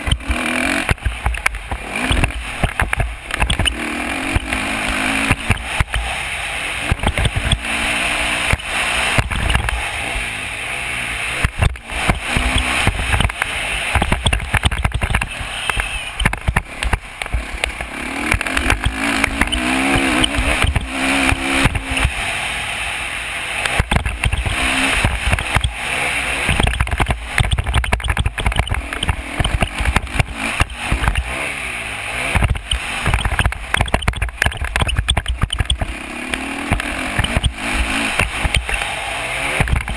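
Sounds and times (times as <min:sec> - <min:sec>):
knocks from bumps: 0:00.0 - 0:06.1, 0:06.9 - 0:07.7, 0:11.4 - 0:22.2, 0:23.7 - 0:25.8, 0:26.4 - 0:31.4, 0:32.3 - 0:39.9
motorcycle engine revving: 0:00.0 - 0:39.9.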